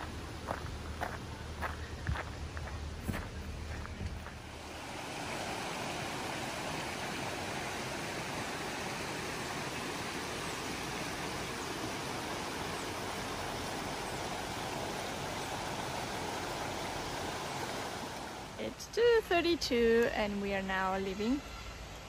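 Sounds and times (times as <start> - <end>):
creek water rushing over stones: 0.0 - 19.1.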